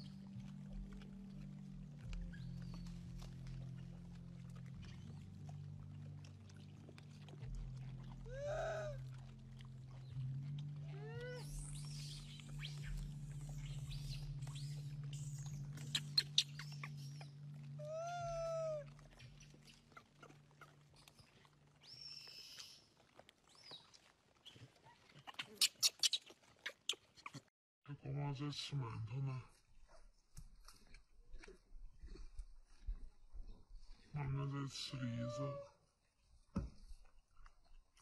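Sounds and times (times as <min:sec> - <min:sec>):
steady low hum: 0:00.0 - 0:21.0
macaques cooing: 0:08.1 - 0:22.6, 0:25.3 - 0:27.4, 0:35.0 - 0:35.7.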